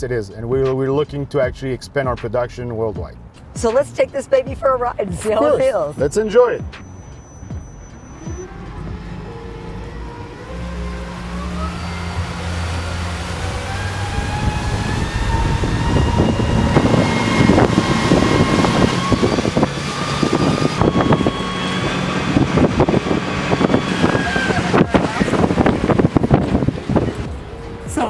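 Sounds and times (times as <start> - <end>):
electric motor whine rising: 6.8 - 28.0
water and wind rushing: 9.0 - 28.0.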